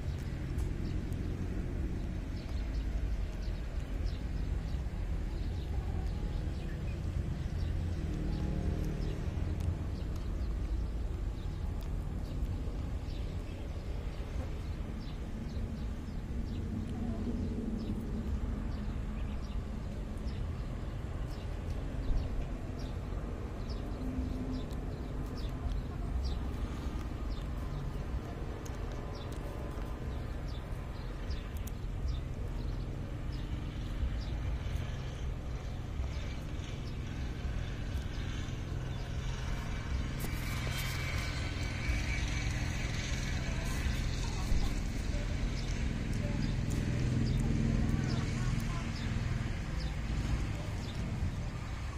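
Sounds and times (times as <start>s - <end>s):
monkey chewing leafy stems: 21.0s - 34.7s, 39.4s - 51.9s.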